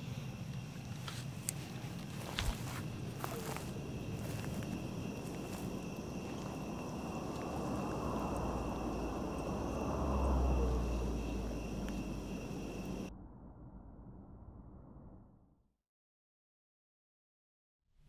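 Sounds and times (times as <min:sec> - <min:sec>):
insects trilling: 0:00.0 - 0:13.1
low rumble: 0:02.0 - 0:15.6.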